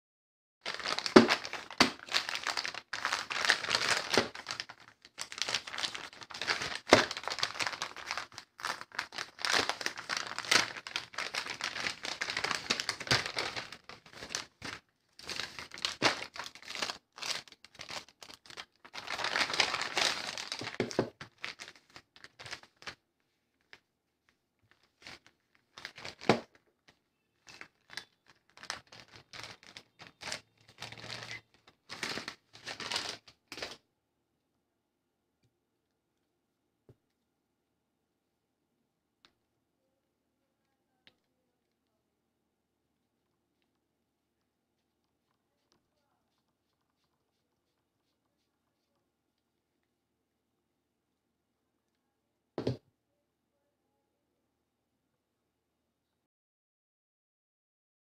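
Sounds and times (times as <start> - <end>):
paper envelope crinkling: 0.6 - 23.0, 24.7 - 33.8
plastic bag rustling: 0.6 - 23.0, 24.8 - 26.6, 27.4 - 33.8.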